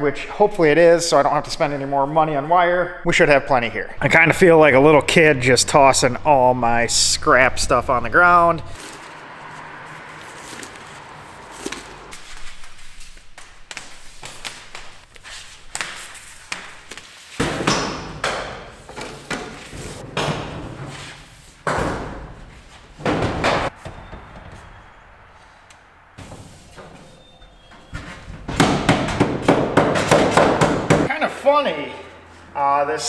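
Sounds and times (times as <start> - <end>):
thumps and scrapes: 25.7 - 31.1.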